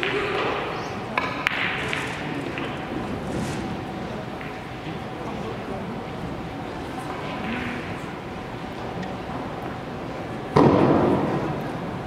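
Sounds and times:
hall background noise: 0:00.0 - 0:12.0.

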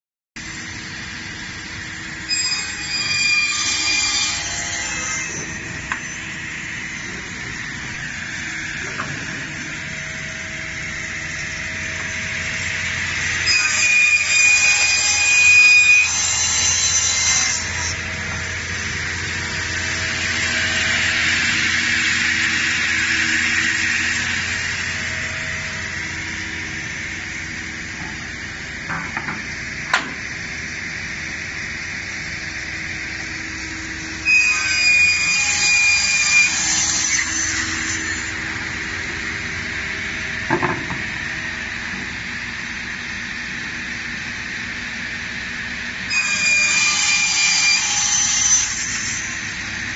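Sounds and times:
panel saw whining: 0:00.4 - 0:43.0
saw cutting through panel: 0:00.8 - 0:42.2, 0:46.0 - 0:49.9
sharp knocks: 0:28.8 - 0:30.2, 0:40.5 - 0:41.1.

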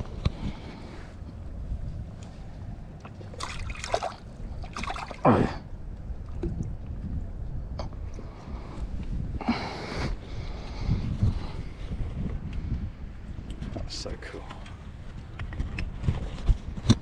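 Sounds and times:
water splashing and trickling: 0:02.7 - 0:08.3.

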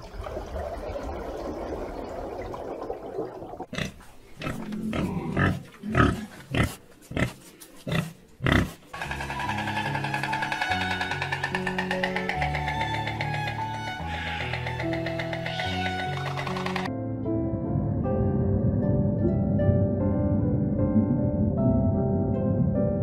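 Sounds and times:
music with held notes: 0:09.0 - 0:17.5.

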